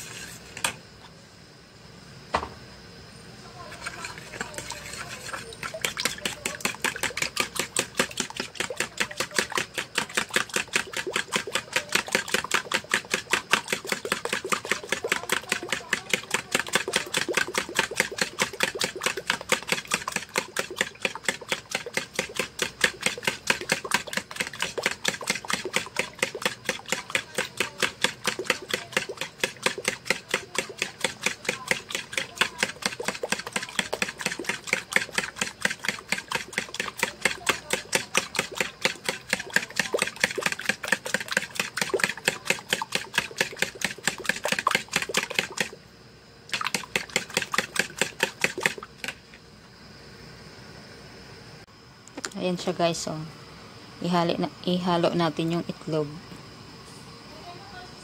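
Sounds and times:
liquid sloshing: 3.7 - 45.8, 46.5 - 49.4.

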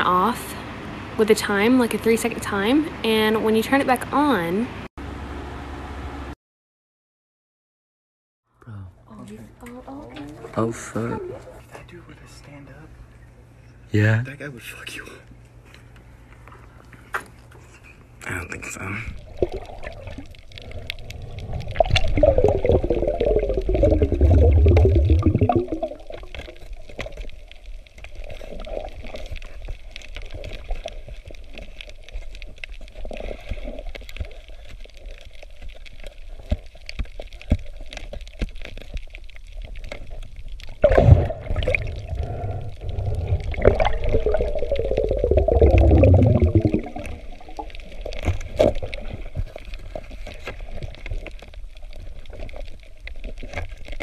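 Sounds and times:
underwater bubbling gurgle: 19.1 - 54.0.

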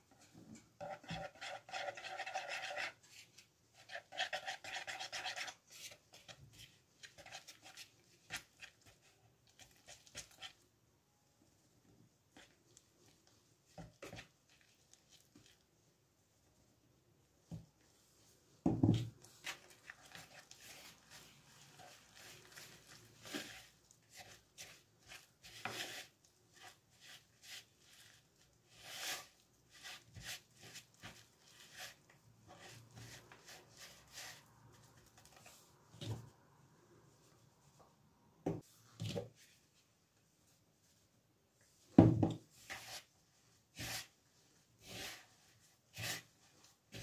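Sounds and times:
whisk scraping dough in bowl: 0.8 - 10.6, 19.4 - 34.6, 44.8 - 47.0.

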